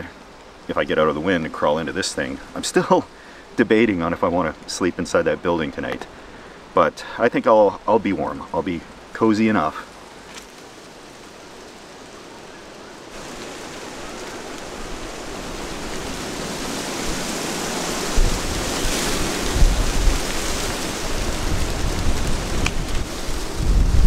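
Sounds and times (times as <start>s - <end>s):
wind gusts on microphone: 13.1s - 24.0s.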